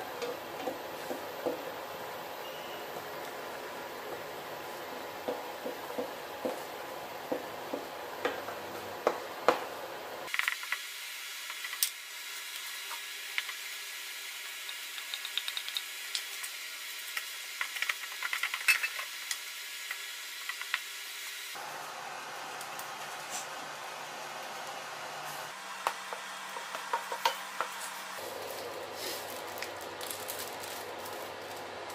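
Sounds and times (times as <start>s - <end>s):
steady hiss: 10.2s - 31.9s.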